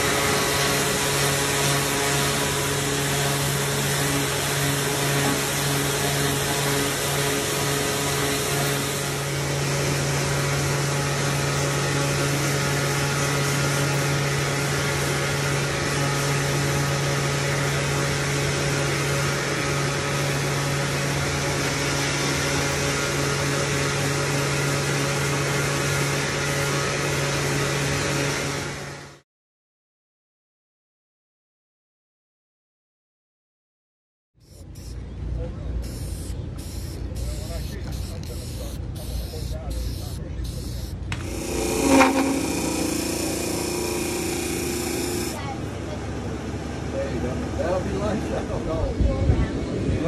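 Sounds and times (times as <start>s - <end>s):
electric sander motor hum: 0.0s - 29.0s, 36.2s - 45.5s.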